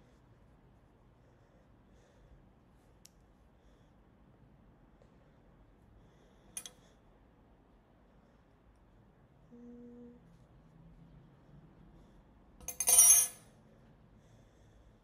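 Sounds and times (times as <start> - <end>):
person humming: 9.5 - 10.3.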